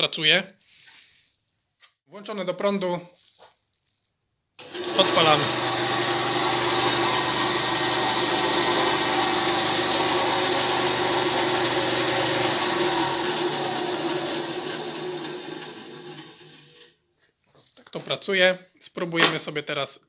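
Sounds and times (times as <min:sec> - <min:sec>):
band saw motor hum: 0:04.6 - 0:16.7.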